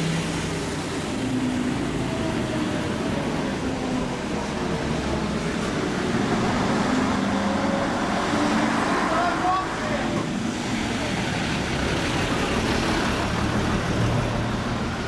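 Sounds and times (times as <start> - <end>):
bus engine rumbling: 0.0 - 15.0
street traffic: 0.0 - 15.0.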